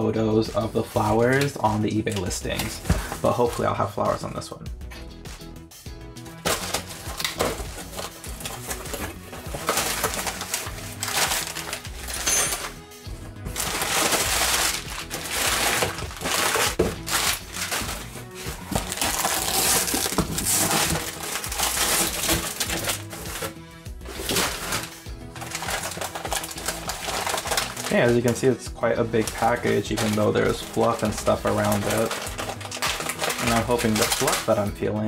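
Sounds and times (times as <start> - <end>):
background music: 0.0 - 35.0
crumpled newspaper rustling: 0.6 - 3.9, 6.4 - 12.8, 13.5 - 34.7
packing tape peeled off box: 6.4 - 12.7, 13.6 - 28.0, 29.2 - 34.4.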